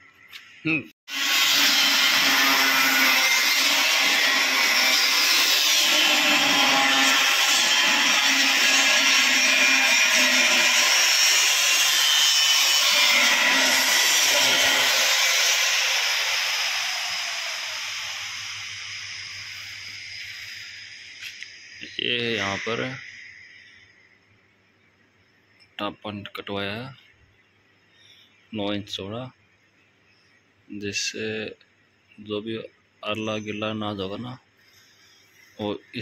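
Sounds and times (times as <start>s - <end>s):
angle grinder cutting steel: 1.1s - 21.7s.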